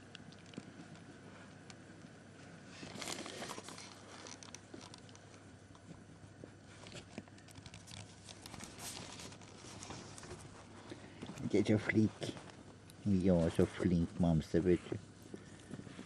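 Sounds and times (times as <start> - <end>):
rustling and crinkling bedding: 0.0 - 16.0.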